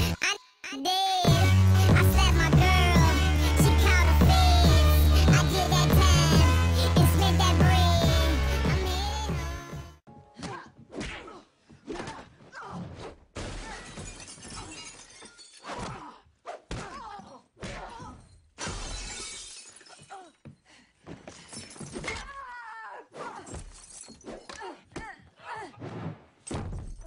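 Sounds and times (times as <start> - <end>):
glass shattering: 13.4 - 15.9, 18.6 - 20.3, 21.3 - 22.2, 23.5 - 24.3.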